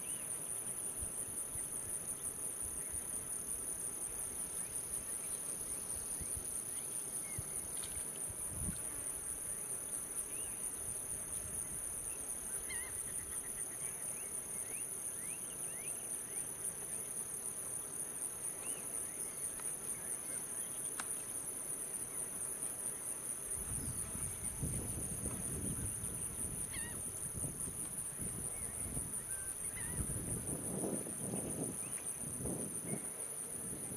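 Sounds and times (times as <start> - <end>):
high-pitched insect chorus: 0.0 - 33.9
faint short chirping calls: 26.7 - 27.0.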